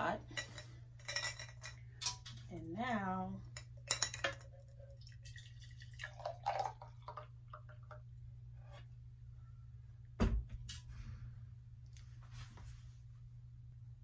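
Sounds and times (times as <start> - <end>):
liquid dripping: 4.5 - 8.0
juice pouring into a jar: 4.6 - 7.9.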